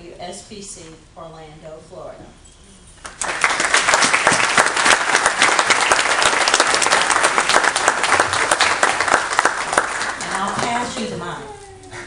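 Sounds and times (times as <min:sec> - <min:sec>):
audience applauding: 0:03.1 - 0:11.1.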